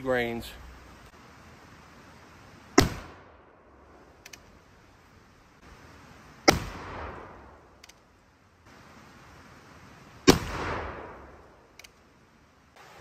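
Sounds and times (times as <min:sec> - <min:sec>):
rifle shots with rolling echo: 0:02.8 - 0:04.1, 0:06.4 - 0:07.8, 0:10.2 - 0:11.7.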